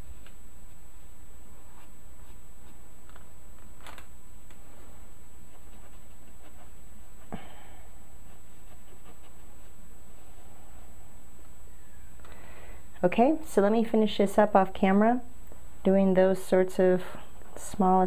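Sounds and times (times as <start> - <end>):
low electrical hum: 0.0 - 18.0
rubbing on paper: 0.7 - 3.0, 4.6 - 7.2, 8.2 - 10.9.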